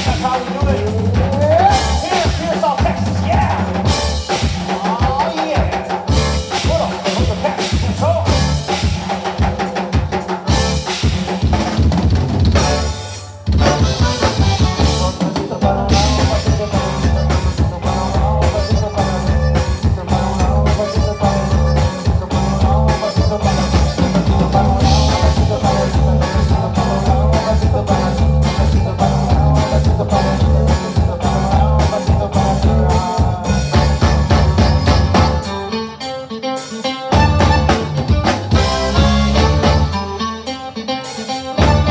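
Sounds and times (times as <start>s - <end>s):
accordion band playing: 0.0s - 41.9s.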